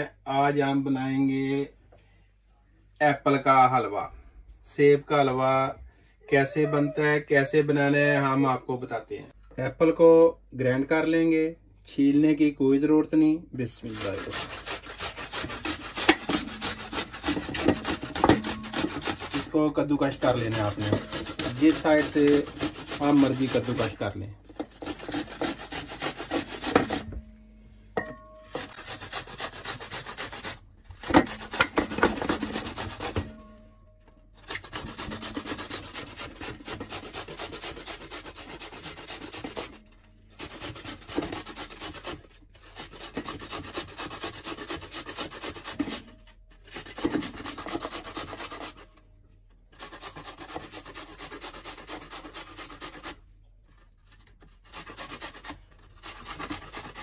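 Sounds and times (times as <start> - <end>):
apple rasping on grater: 13.7 - 27.3, 28.4 - 33.6, 34.4 - 48.8, 49.7 - 57.0.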